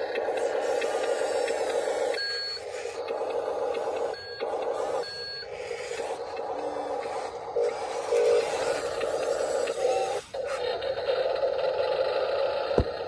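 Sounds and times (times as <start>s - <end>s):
electric drive motor whine: 0.0s - 13.0s
reversing beeper beeps: 1.8s - 5.7s.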